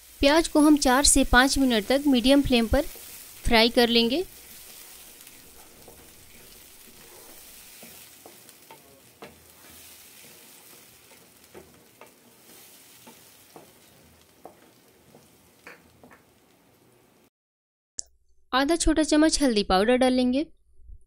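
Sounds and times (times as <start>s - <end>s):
paste sizzling in oil: 0.0s - 17.3s
wooden spatula scraping a pan: 0.8s - 16.4s.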